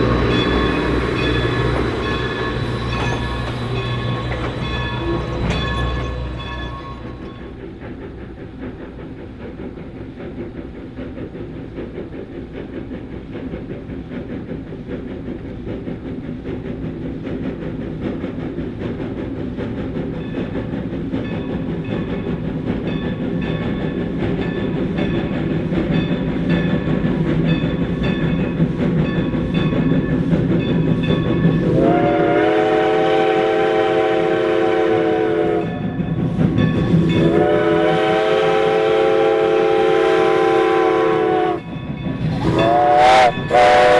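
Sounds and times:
steam locomotive running: 0.0s - 43.9s
steam whistle blasts: 31.6s - 35.8s, 37.2s - 41.6s, 42.4s - 43.9s.

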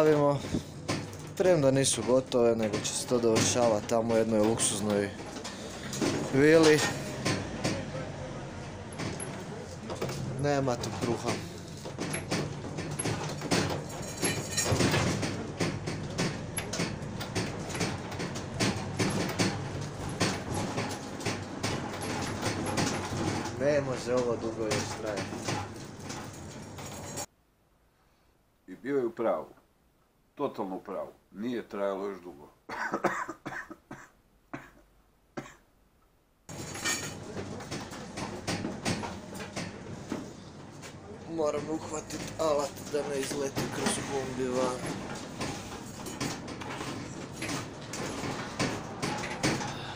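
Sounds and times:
cargo rattling and clanking: 0.0s - 27.3s, 36.5s - 49.9s
van ride rumble: 0.1s - 27.3s
person coughing: 32.7s - 35.6s.

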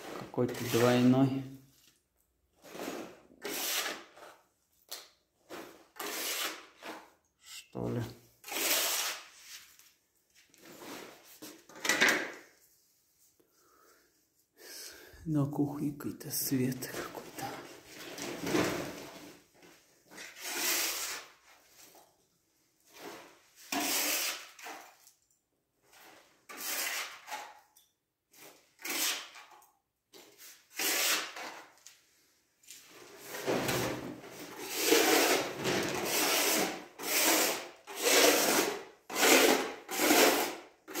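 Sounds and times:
rubbing and scraping: 0.0s - 1.2s, 5.4s - 7.7s, 32.9s - 41.0s.

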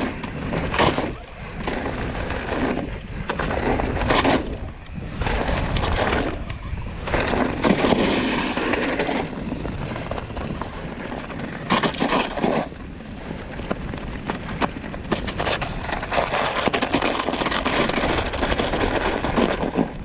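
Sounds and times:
bike tyres rolling over dirt: 0.0s - 20.0s
wind buffeting microphone: 0.0s - 20.0s.

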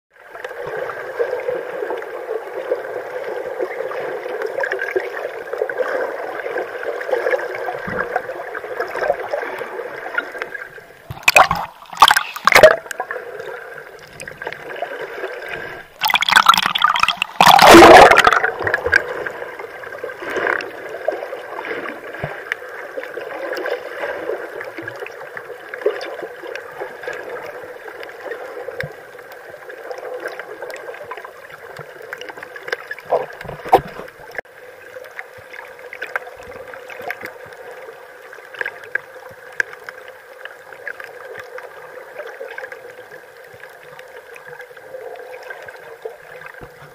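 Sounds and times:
rushing water splashes: 0.2s - 46.9s
water gurgling and bubbling: 0.5s - 34.5s
small clicks underwater: 7.5s - 14.8s, 24.6s - 34.4s, 35.0s - 46.9s.

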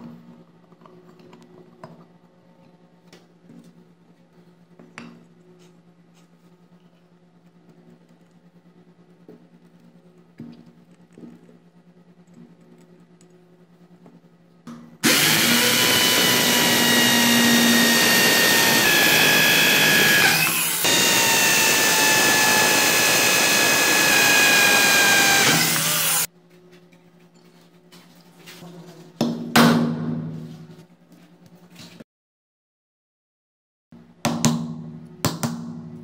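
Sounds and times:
power drill boring into wood: 15.0s - 26.3s.

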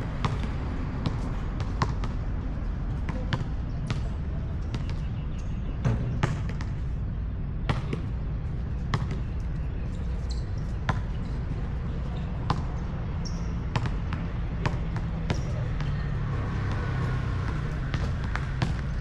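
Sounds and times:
basketball bouncing on hard court: 0.1s - 2.2s, 3.0s - 5.1s, 8.9s - 9.3s, 10.3s - 11.2s, 12.4s - 16.0s, 16.6s - 19.0s.

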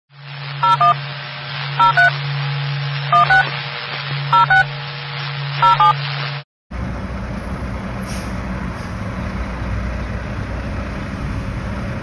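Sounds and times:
touch-tone beeps: 0.6s - 1.0s, 1.8s - 2.1s, 3.1s - 3.5s, 4.4s - 4.7s, 5.6s - 6.0s.

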